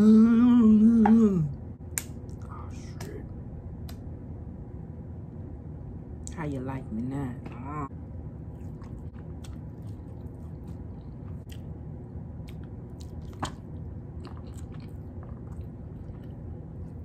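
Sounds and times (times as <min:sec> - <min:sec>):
low hum: 0:00.0 - 0:17.0
wet chewing and lip-smacking: 0:08.5 - 0:17.0.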